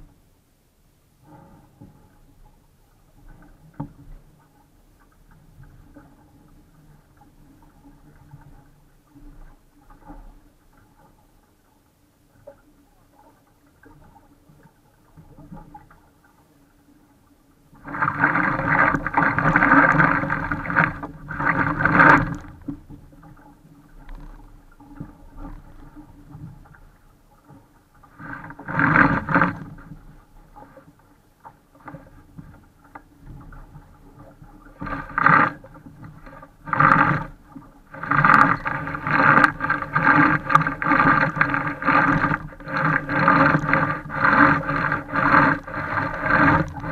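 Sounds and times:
rushing wind and water: 17.7s - 46.9s.

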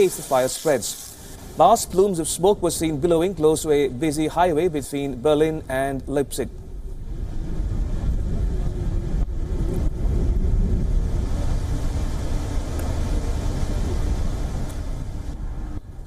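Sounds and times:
low rumble: 5.6s - 16.0s
wavering engine hum: 6.5s - 16.0s.

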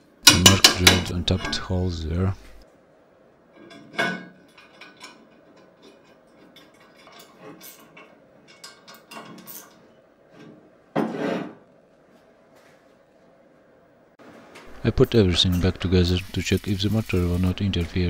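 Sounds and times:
metal clank: 3.6s - 9.8s.

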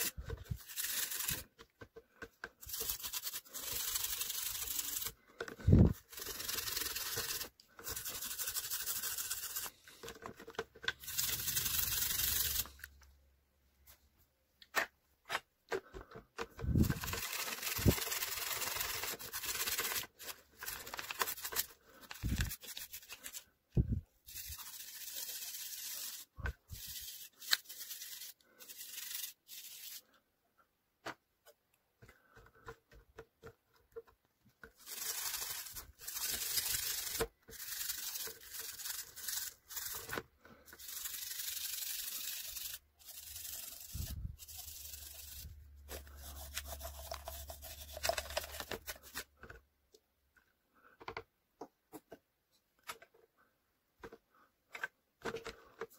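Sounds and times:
toothbrush scrubbing in water: 34.8s - 49.1s.

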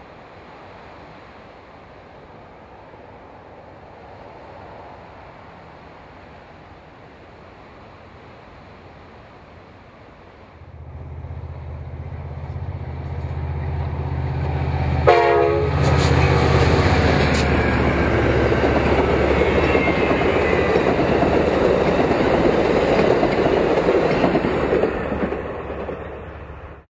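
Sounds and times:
diesel locomotive engine drone: 0.0s - 26.9s
train wheels rumbling on rails: 10.6s - 26.9s
train horn blast: 13.1s - 17.4s.

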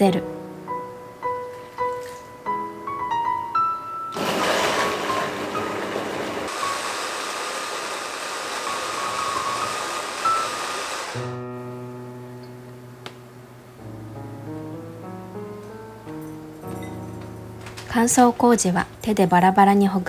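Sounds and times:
soft piano music: 0.0s - 4.2s, 4.8s - 6.9s, 8.6s - 20.0s
hand blender whirring: 4.2s - 11.3s.

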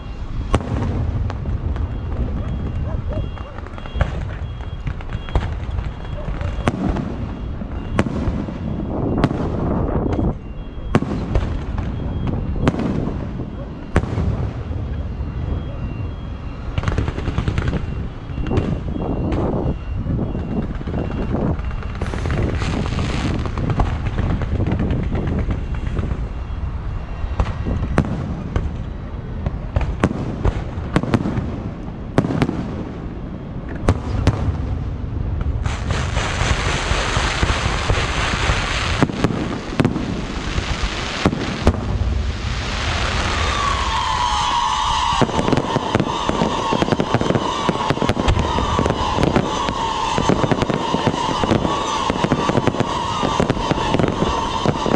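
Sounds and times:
fireworks booming and cracking: 0.0s - 54.9s
high whistle: 17.8s - 23.5s, 42.9s - 54.9s
fireworks crackling hiss: 21.8s - 24.9s, 35.4s - 54.9s.

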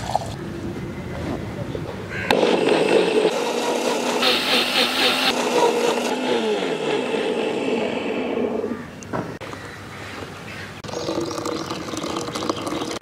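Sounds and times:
mixer grinder motor running: 2.3s - 9.0s.

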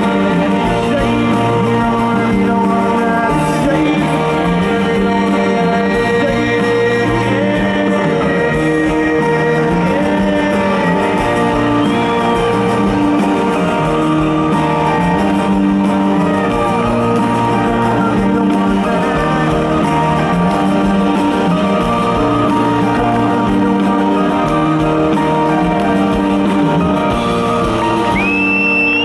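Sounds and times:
live rock band playing: 0.0s - 29.0s
shrill whistle from audience: 11.2s - 15.0s, 27.7s - 29.0s.

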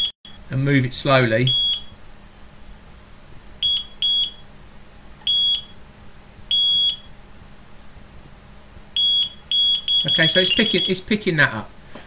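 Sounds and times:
bite alarm beeping: 0.0s - 0.5s, 1.4s - 2.0s, 3.6s - 4.5s, 5.3s - 5.8s, 6.5s - 7.1s, 9.0s - 11.1s.

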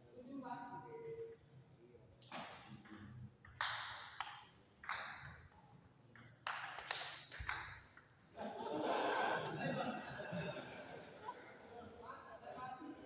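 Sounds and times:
table tennis ball hits: 2.3s - 5.6s, 6.2s - 8.2s.

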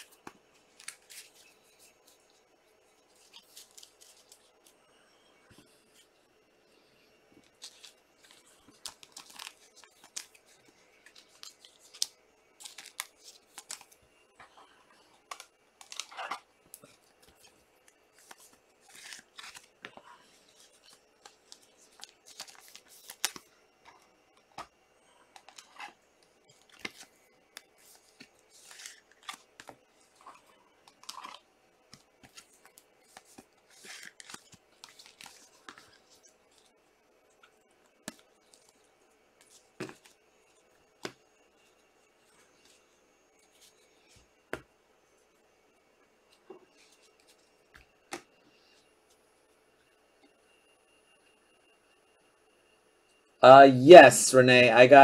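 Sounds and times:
trading cards shuffled by hand: 0.0s - 2.3s, 3.1s - 4.8s, 7.4s - 14.0s, 15.1s - 23.5s, 25.4s - 36.7s.

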